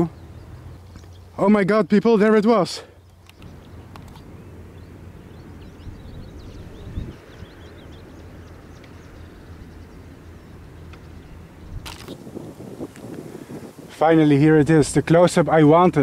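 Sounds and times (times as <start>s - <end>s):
faint bird chirps: 2.8s - 12.1s.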